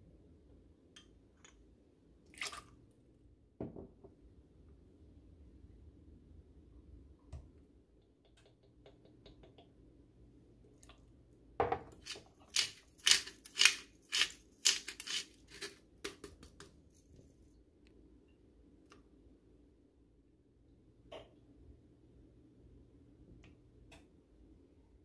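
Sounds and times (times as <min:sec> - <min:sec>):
sharp clicks and scrapes: 0:12.0 - 0:16.2.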